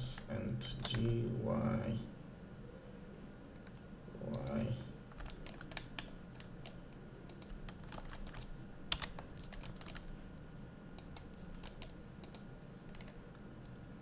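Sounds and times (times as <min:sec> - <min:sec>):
faint low hum: 0:00.0 - 0:14.0
keyboard keys clicking: 0:00.8 - 0:01.2, 0:03.6 - 0:10.1, 0:11.0 - 0:13.2.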